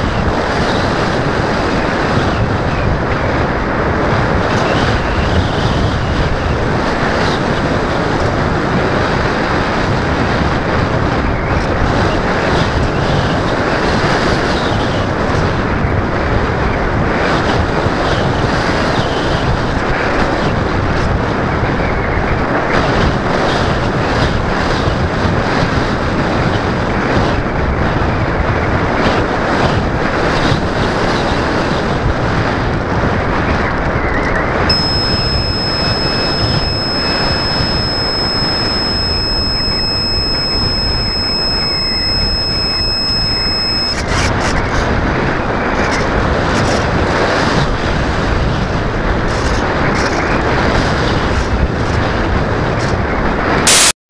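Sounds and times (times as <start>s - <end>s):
high-pitched whine: 34.7s - 44.6s, 53.7s - 53.9s.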